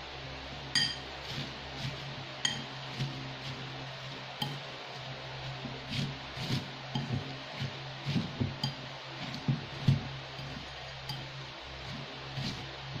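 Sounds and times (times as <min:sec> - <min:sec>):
metal utensil scraping ceramic bowl: 0:02.4 - 0:02.7.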